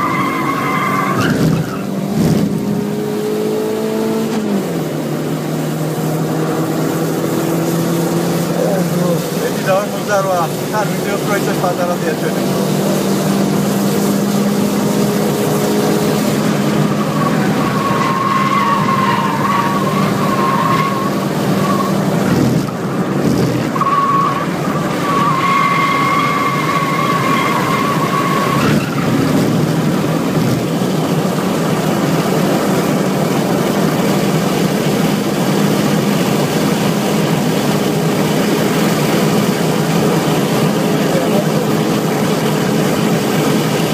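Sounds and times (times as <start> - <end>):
car engine under load: 0.0 - 43.9
road noise: 0.0 - 43.9
tyres squealing: 17.0 - 22.0.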